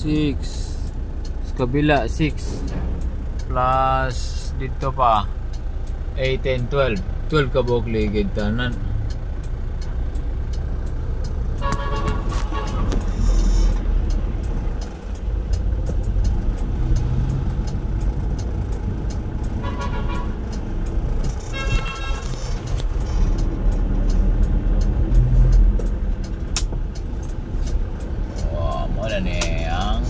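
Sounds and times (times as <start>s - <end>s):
car engine and road rumble: 0.0s - 30.0s
vehicle horn toots: 11.6s - 13.0s, 19.6s - 20.4s, 21.5s - 22.4s.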